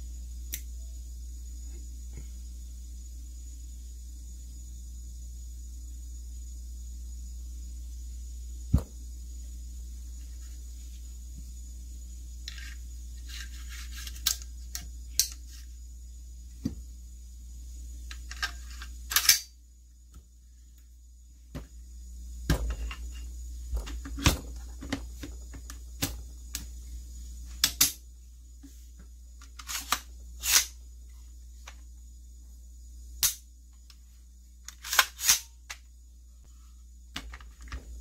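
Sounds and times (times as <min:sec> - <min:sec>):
rifle parts clicking together: 0:18.1 - 0:19.5.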